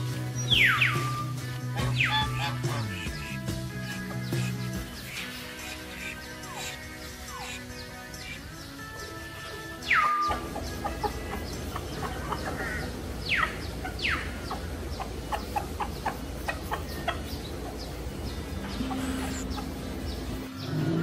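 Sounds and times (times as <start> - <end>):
chickens clucking: 0.0 - 21.0
sharp falling calls: 0.0 - 21.0.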